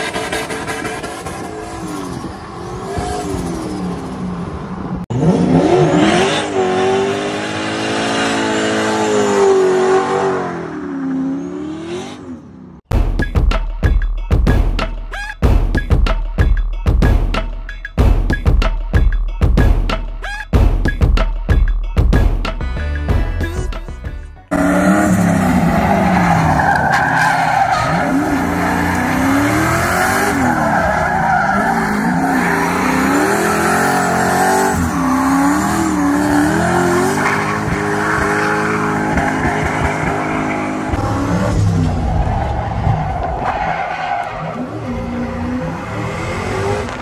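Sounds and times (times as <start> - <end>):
engine revving hard: 5.1 - 12.4, 31.5 - 42.0
tires squealing and skidding: 24.5 - 47.0.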